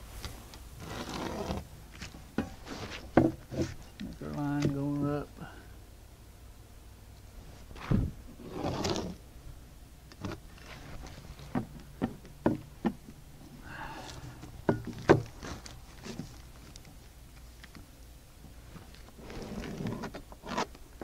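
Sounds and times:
knocking and scraping on plywood wall: 2.4 - 3.8, 10.2 - 13.0, 14.7 - 16.3.

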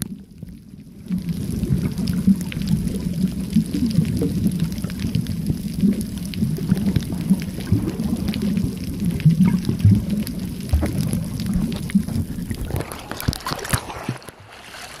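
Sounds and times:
small water splashes and drips: 0.0 - 15.0
muffled underwater sloshing: 0.8 - 15.0
underwater clicks: 3.7 - 14.9.

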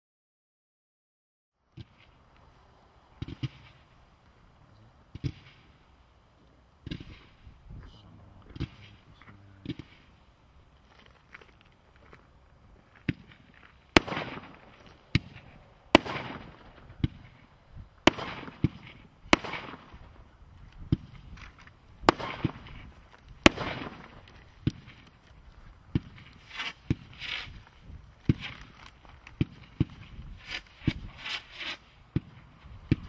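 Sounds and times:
firework cake bangs: 13.0 - 20.2, 22.0 - 25.0, 28.2 - 28.7, 29.4 - 33.0.

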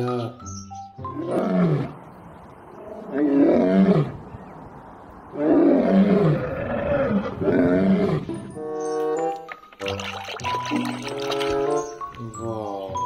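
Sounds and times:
lion roaring: 2.7 - 4.3, 5.3 - 8.3.

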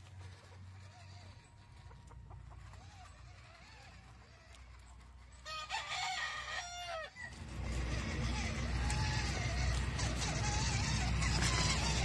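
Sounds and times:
chickens clucking: 0.0 - 12.0
rooster crowing: 5.4 - 10.4.

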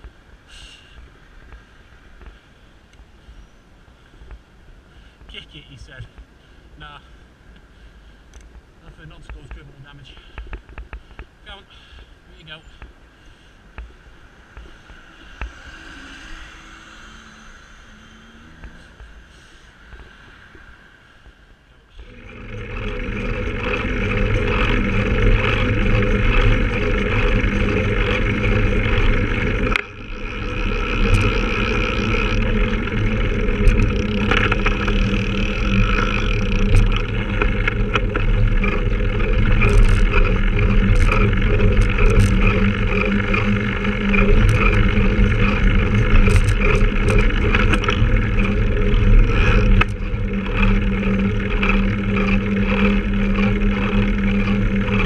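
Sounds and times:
bicycle road noise: 0.0 - 55.0
wind noise: 22.0 - 55.0.

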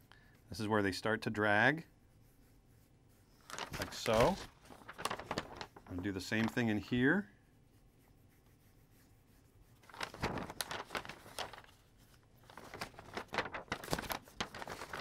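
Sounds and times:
paper sheets rustling: 3.4 - 7.2, 9.7 - 15.0.

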